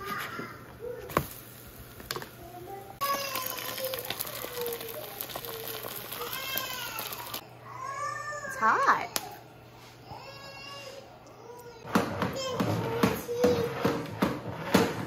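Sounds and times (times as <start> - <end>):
egg frying in a pan: 1.1 - 7.4.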